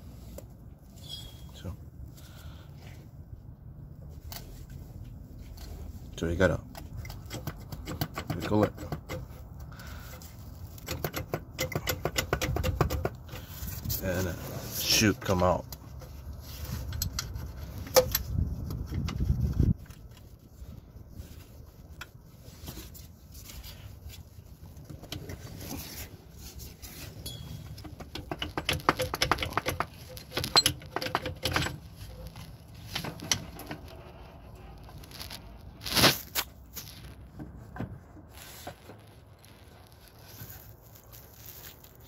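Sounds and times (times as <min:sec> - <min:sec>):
filter housing clicking and scraping: 0:06.6 - 0:14.4, 0:15.2 - 0:20.4, 0:24.6 - 0:39.1.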